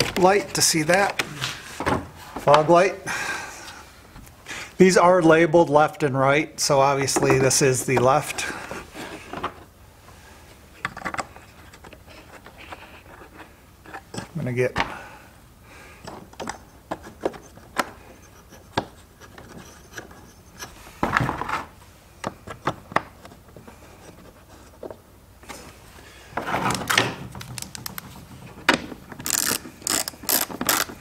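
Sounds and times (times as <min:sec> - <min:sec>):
plastic parts clicking and rubbing: 0:10.8 - 0:14.4, 0:26.4 - 0:31.0
ratchet clicking rapidly: 0:29.2 - 0:30.9.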